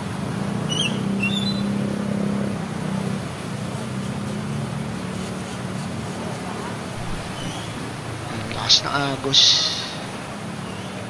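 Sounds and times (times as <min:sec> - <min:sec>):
vehicle engine humming: 0:00.0 - 0:11.0
floodwater rushing: 0:02.5 - 0:11.0.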